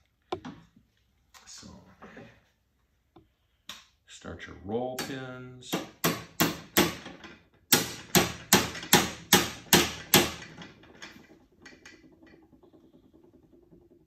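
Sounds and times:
hammer tapping metal pins: 5.0s - 14.0s.

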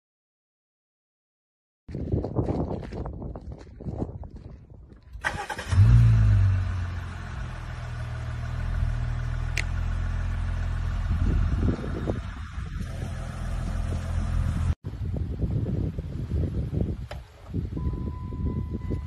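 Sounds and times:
car engine starting and idling: 5.2s - 14.8s.

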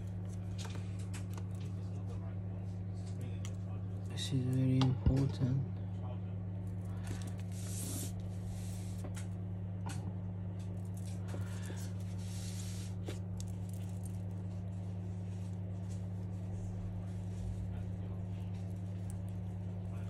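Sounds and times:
low electrical hum: 0.0s - 20.0s
fingers rustling parts: 6.6s - 9.4s, 10.6s - 14.8s.

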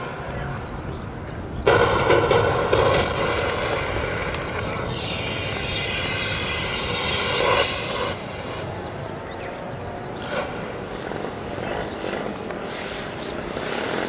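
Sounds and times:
model plane engine and propeller: 3.9s - 14.0s.

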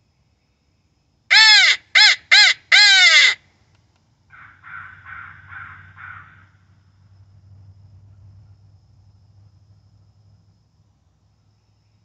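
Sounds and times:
crow call caws: 1.3s - 3.4s, 4.3s - 6.6s
distant crows cawing: 1.3s - 3.4s, 4.3s - 6.7s.

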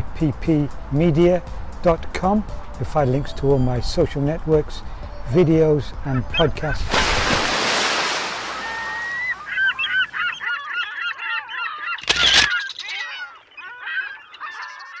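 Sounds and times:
flock of birds calling: 8.1s - 15.0s.

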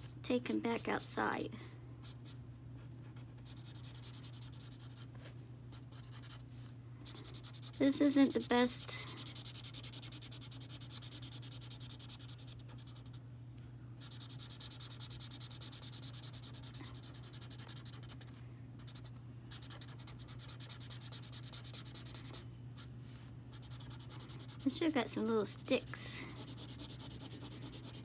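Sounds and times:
marker scratching on paper: 3.1s - 5.2s, 7.2s - 13.2s, 14.0s - 22.4s, 23.5s - 28.0s.

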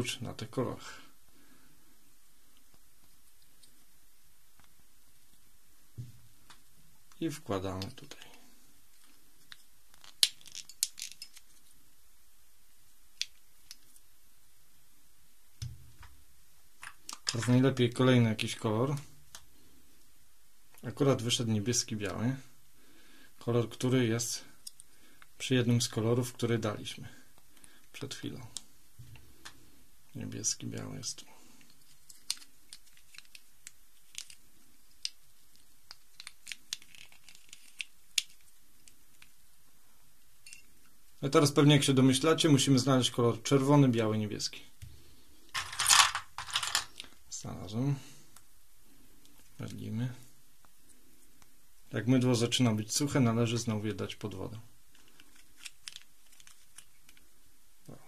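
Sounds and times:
plastic cube pieces clicking: 9.4s - 11.7s, 31.7s - 39.3s, 55.0s - 57.3s.

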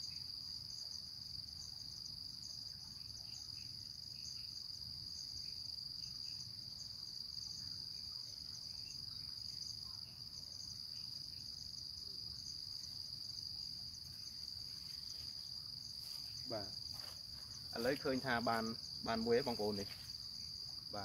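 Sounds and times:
pulsing insect trill: 0.0s - 21.0s
shrill insect drone: 7.5s - 21.0s.

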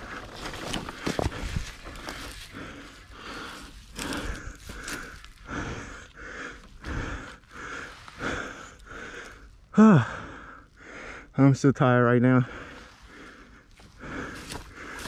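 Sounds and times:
man breathing hard: 0.0s - 11.4s, 12.4s - 15.0s
man groaning: 9.8s - 10.2s.

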